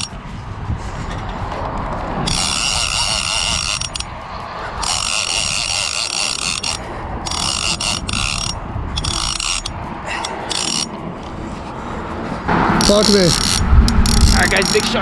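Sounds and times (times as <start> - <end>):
fishing reel drag screaming: 2.3 - 4.1, 4.8 - 10.9, 12.8 - 15.0.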